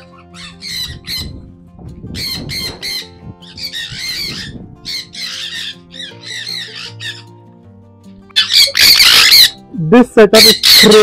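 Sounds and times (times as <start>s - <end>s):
flock of parrots calling: 0.0s - 1.4s, 2.2s - 7.3s, 8.3s - 9.6s, 10.4s - 11.0s
background music: 0.0s - 11.0s.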